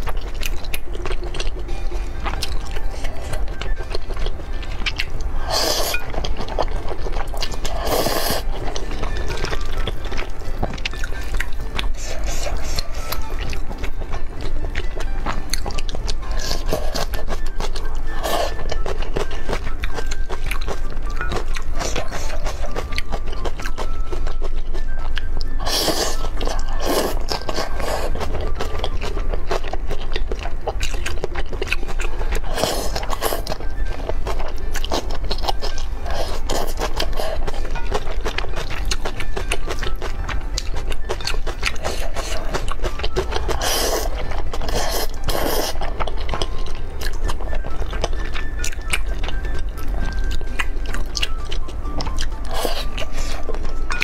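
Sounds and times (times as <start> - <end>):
wet chewing and mouth clicks: 0.0 - 54.0
slurping noodles: 7.7 - 8.6, 25.6 - 28.2, 43.5 - 45.9, 52.4 - 53.5.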